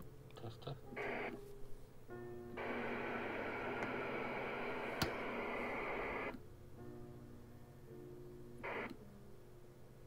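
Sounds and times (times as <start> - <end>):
faint background music: 0.0 - 10.0
radio hiss: 0.9 - 1.4, 2.6 - 6.4, 8.6 - 9.0.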